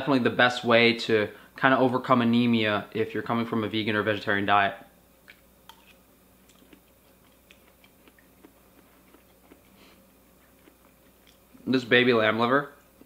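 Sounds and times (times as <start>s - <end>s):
faint steady hum: 0.0s - 13.0s
wet mouth clicks chewing: 5.3s - 9.8s, 10.4s - 11.6s.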